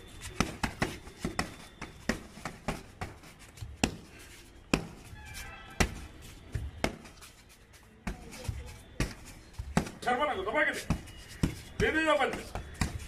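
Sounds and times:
punches thudding on punching bag: 0.4 - 4.0, 4.7 - 5.0, 5.8 - 7.1.

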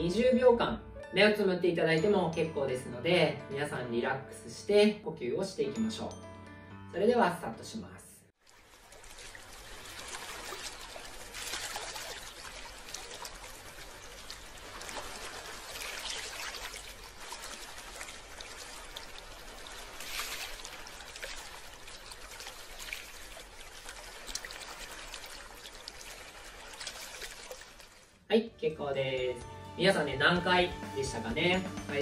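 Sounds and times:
ocean waves washing onto beach: 8.6 - 27.9.

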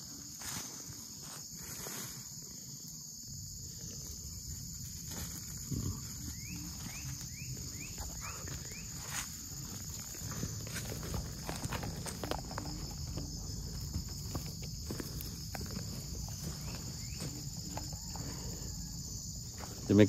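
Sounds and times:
high-pitched insect drone: 0.0 - 20.0
footsteps in dry leaves: 6.6 - 18.5.

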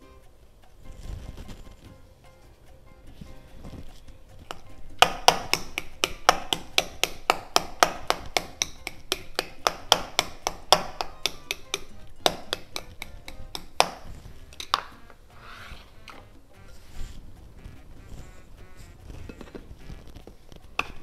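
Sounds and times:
soft background music: 0.0 - 21.0
knife chopping on cutting board: 4.5 - 15.0.

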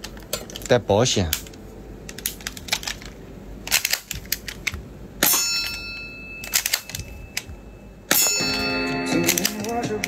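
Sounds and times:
sharp ringing metal clack: 5.2 - 9.4
toy pistol clicks: 6.4 - 7.5, 9.3 - 9.8.

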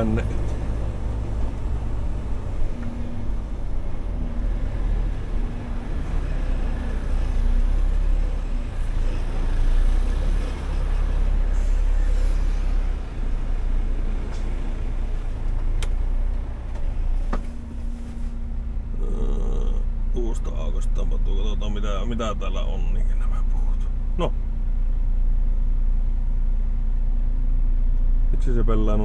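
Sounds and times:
diesel truck engine drone: 0.0 - 29.0.

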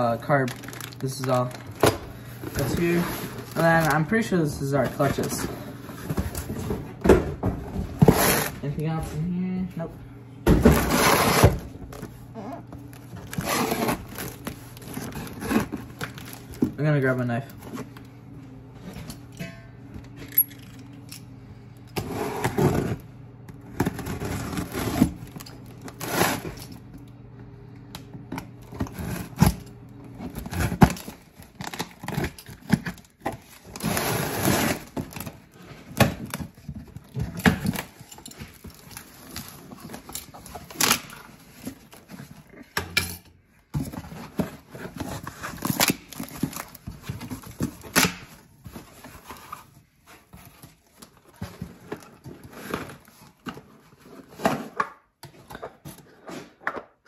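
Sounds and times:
packaging rustling: 0.0 - 6.8, 10.8 - 18.0, 30.2 - 42.6, 43.8 - 54.8
packaging tearing: 0.2 - 1.9, 2.5 - 5.4, 12.9 - 16.6
knife cutting packaging: 0.4 - 5.4, 8.0 - 8.6, 10.7 - 11.6, 13.1 - 16.7, 23.8 - 26.8, 28.7 - 42.4, 43.8 - 54.8.

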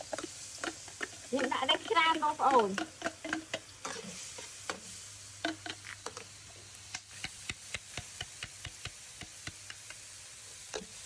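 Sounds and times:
metal ladle scraping a wok: 0.0 - 6.2
faint hiss: 0.0 - 11.0.

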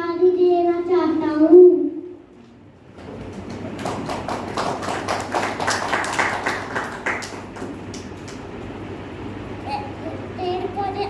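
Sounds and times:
small group clapping: 2.9 - 8.5.

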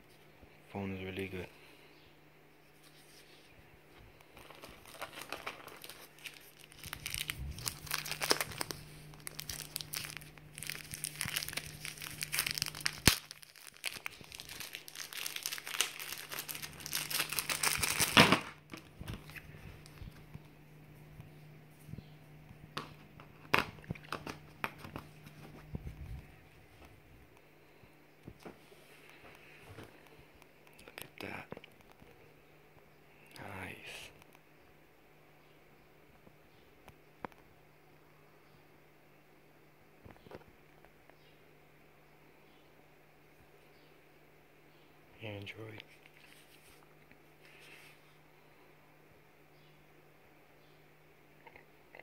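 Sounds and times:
plastic packaging crinkling and tearing: 4.3 - 20.2.

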